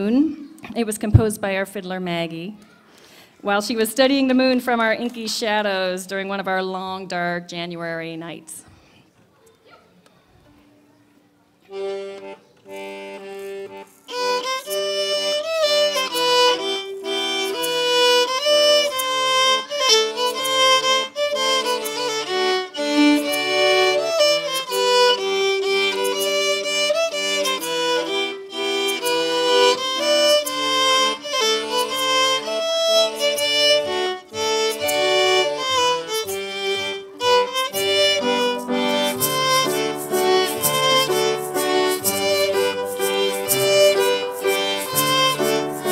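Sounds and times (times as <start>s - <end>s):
accordion: 11.6s - 45.9s
fiddle playing waltz: 11.7s - 45.9s
piano: 14.2s - 45.9s.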